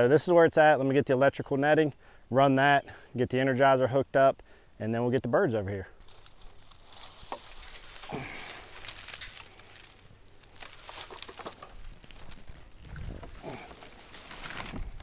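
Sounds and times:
mesh netting rustling: 0:06.0 - 0:15.0.

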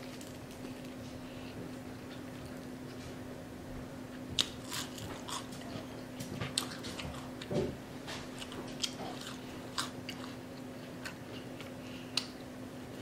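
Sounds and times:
crunchy chewing: 0:04.4 - 0:07.5, 0:08.1 - 0:12.5.

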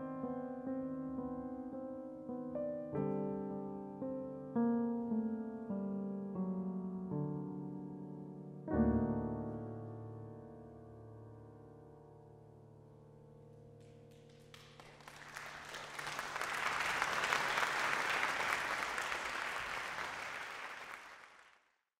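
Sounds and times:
audience applause: 0:14.1 - 0:21.7.

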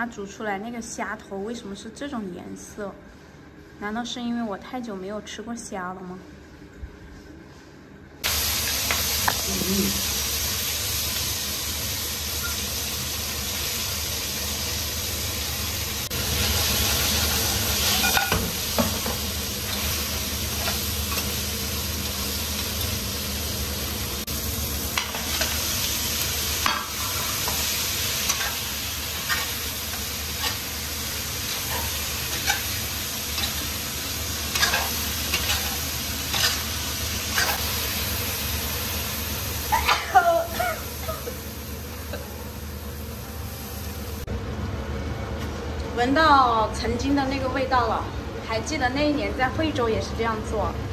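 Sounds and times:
oil sizzling in a wok: 0:08.2 - 0:44.3
spatula scraping and knocking wok: 0:16.4 - 0:21.4, 0:24.9 - 0:37.8.

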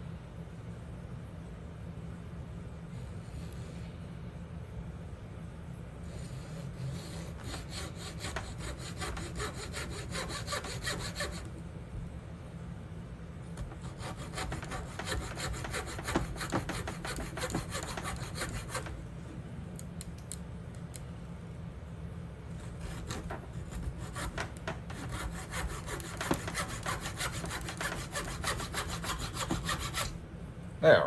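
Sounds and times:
saw cutting wooden dowel: 0:06.9 - 0:11.5, 0:13.6 - 0:19.0, 0:22.7 - 0:30.2.

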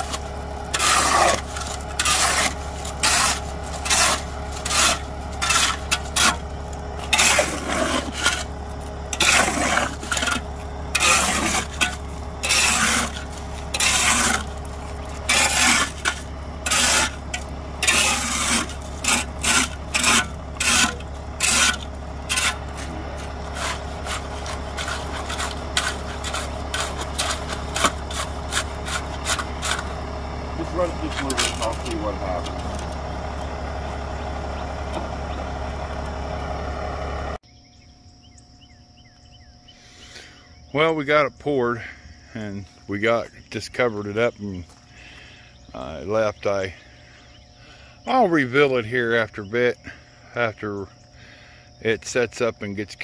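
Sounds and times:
shovel scraping wet concrete: 0:00.0 - 0:33.6
steady low hum: 0:00.0 - 0:53.0.

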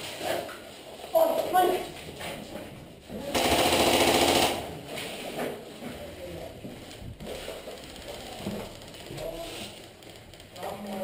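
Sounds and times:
airsoft gun full-auto burst: 0:03.3 - 0:04.6.

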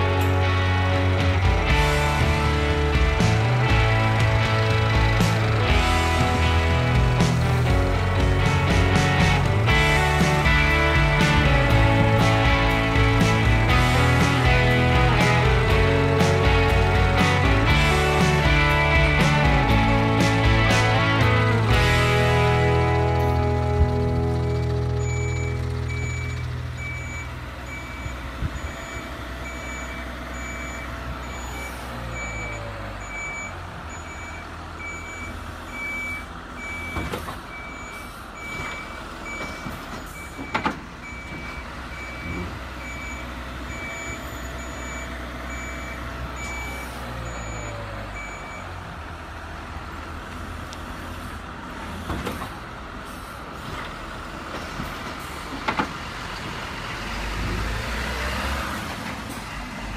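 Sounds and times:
low diesel engine drone: 0:00.0 - 0:59.9
reversing beeper beeps: 0:24.6 - 0:48.8.

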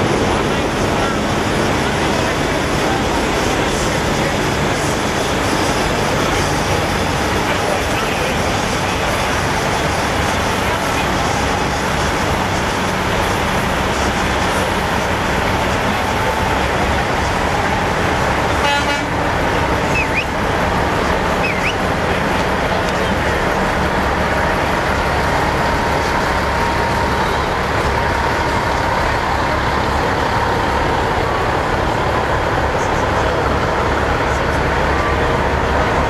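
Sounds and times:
crowd voices: 0:00.0 - 0:36.0
diesel trucks idling: 0:00.0 - 0:36.0
truck air horns: 0:18.5 - 0:20.3.

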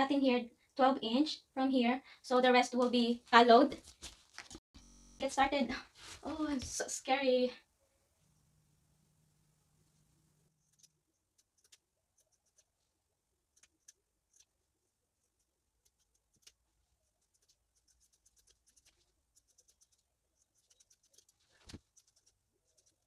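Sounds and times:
scissors snipping fabric: 0:10.6 - 0:12.8, 0:13.5 - 0:14.6, 0:15.8 - 0:23.0.

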